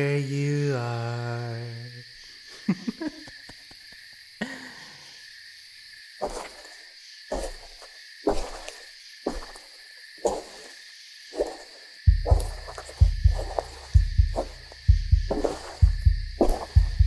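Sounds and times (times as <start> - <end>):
insect chorus: 0.0 - 17.0
footsteps on leafy ground: 6.2 - 6.7, 7.3 - 9.7, 10.3 - 10.7, 11.4 - 16.9.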